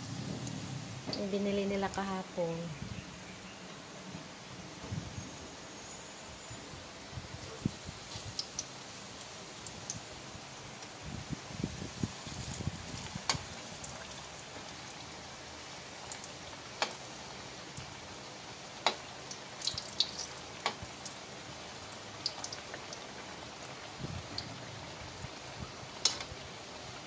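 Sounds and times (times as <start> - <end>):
frying in hot oil: 0.0 - 3.1, 4.4 - 27.0
oil popping and crackling: 7.6 - 27.0.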